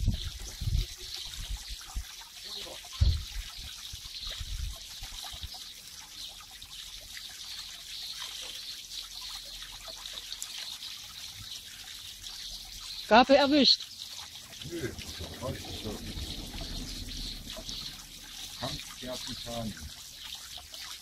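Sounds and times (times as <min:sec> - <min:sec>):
water trickling: 0:00.0 - 0:21.0
low thumps: 0:14.5 - 0:20.0.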